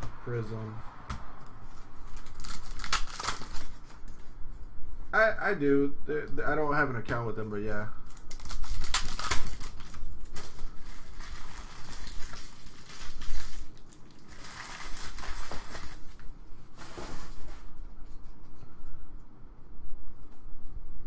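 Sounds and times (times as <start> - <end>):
foil wrapper tearing and crinkling: 2.0 - 4.2, 8.0 - 17.5.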